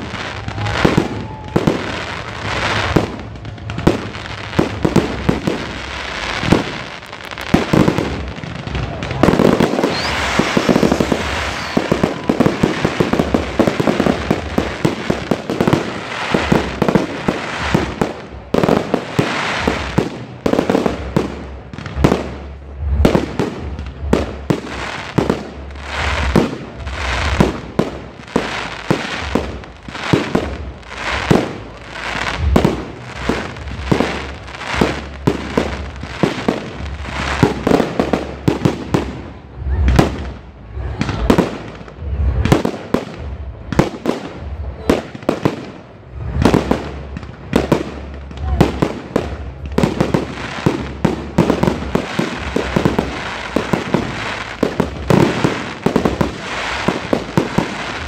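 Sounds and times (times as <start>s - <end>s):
fireworks crackling: 0.0s - 58.0s
fireworks shells bursting: 9.0s - 18.5s.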